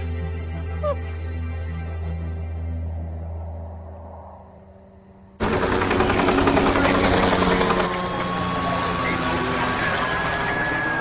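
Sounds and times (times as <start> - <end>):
deep low drone music: 0.0 - 7.0.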